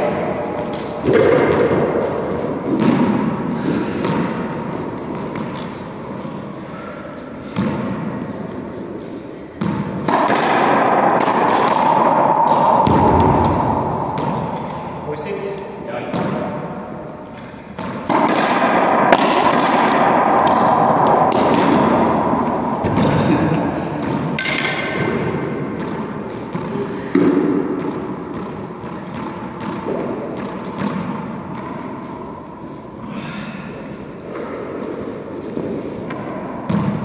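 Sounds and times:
racquets striking ball: 0.0s - 6.5s, 7.4s - 15.0s, 16.0s - 16.8s, 17.6s - 32.2s, 34.2s - 37.0s
ball smacking off court walls: 17.8s - 23.4s.

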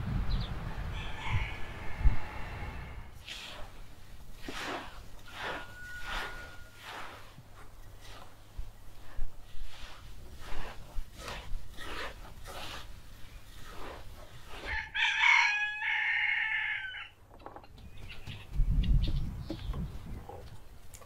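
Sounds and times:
rooster crowing: 0.9s - 3.1s, 14.7s - 17.2s
hands crunching wet salt: 4.4s - 14.8s.

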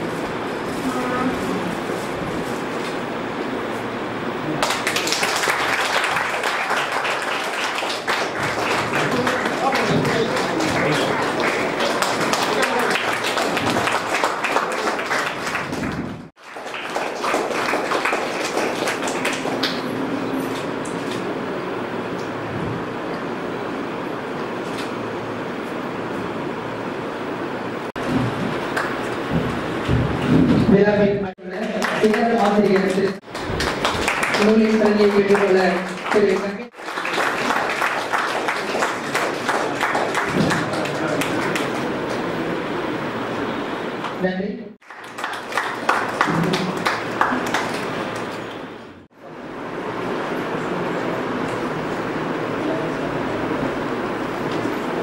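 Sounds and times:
audience applauding: 4.5s - 20.3s, 28.0s - 30.3s, 31.4s - 42.8s, 44.8s - 49.0s
voices: 8.2s - 13.7s.

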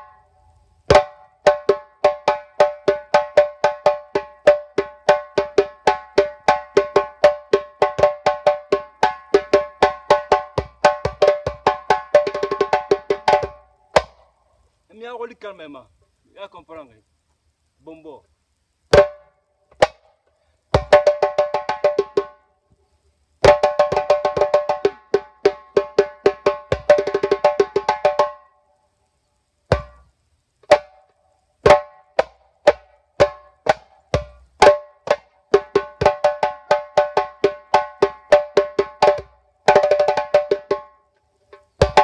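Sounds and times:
djembe played with hands: 0.9s - 14.2s, 18.9s - 20.1s, 20.7s - 22.4s, 23.4s - 28.5s, 29.7s - 30.0s, 30.6s - 42.0s.

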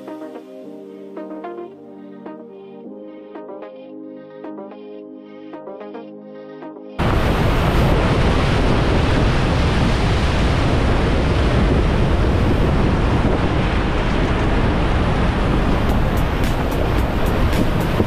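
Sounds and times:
vehicle wind and road noise: 7.0s - 18.0s.

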